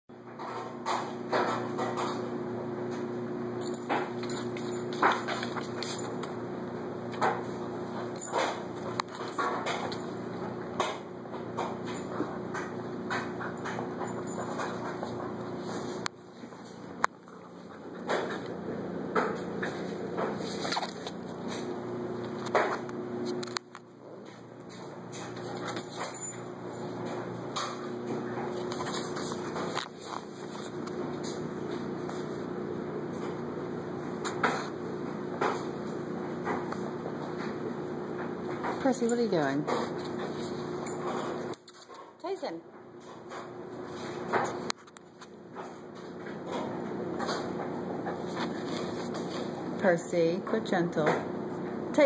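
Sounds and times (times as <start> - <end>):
low background hum: 0.2 - 52.0
animals scuffling and rustling: 13.2 - 18.6, 19.3 - 22.4, 26.8 - 32.4, 43.1 - 49.7.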